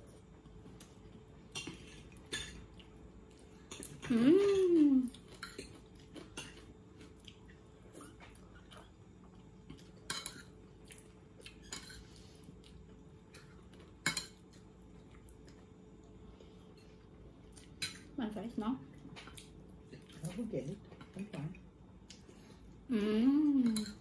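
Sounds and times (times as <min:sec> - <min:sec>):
cutlery clinking against plates: 0:01.5 - 0:02.7, 0:10.0 - 0:10.6, 0:11.5 - 0:12.1, 0:13.3 - 0:14.6
person humming: 0:04.0 - 0:05.2, 0:22.9 - 0:24.0.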